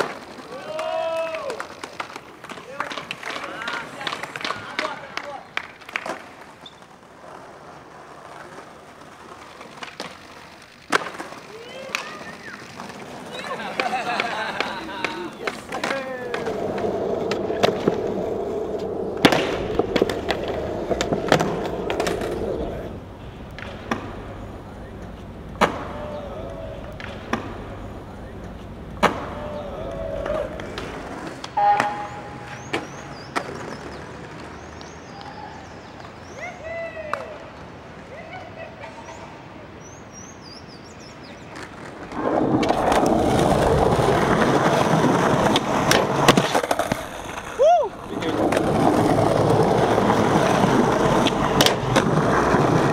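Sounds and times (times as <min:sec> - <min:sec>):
skateboard clacking on ground: 0:00.0 - 0:35.3, 0:41.3 - 0:52.9
skateboard wheels rolling on concrete: 0:00.0 - 0:52.9
street background: 0:00.0 - 0:52.9
bird chirps: 0:31.6 - 0:36.4.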